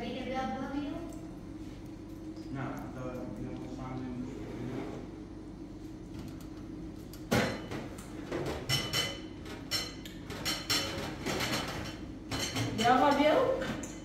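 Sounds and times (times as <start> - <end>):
dishes and utensils clattering: 7.3 - 14.0.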